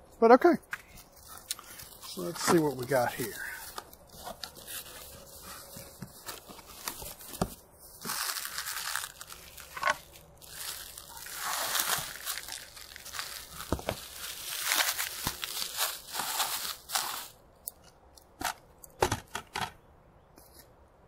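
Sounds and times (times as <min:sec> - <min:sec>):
packaging rustling and crinkling: 0:00.8 - 0:17.4.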